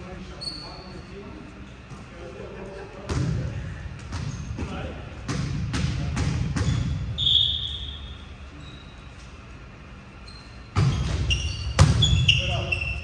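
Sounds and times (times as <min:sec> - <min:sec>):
sneaker squeak on court floor: 0:00.3 - 0:01.1, 0:04.1 - 0:04.8, 0:06.3 - 0:09.2, 0:10.2 - 0:13.0
volleyball hits: 0:03.1 - 0:07.2, 0:10.7 - 0:12.6.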